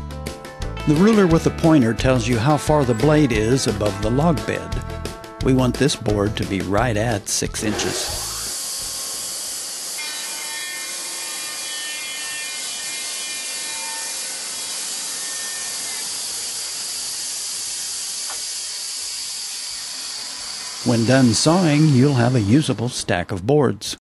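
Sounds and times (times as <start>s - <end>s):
band saw cutting wood: 6.4s - 23.2s
saw motor running: 7.6s - 23.0s.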